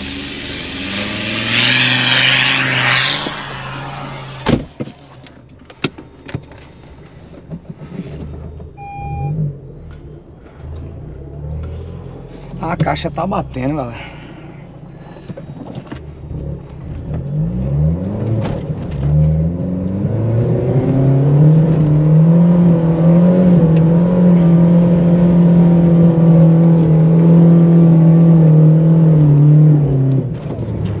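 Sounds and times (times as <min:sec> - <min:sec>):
suv engine revving: 0:00.0 - 0:05.3.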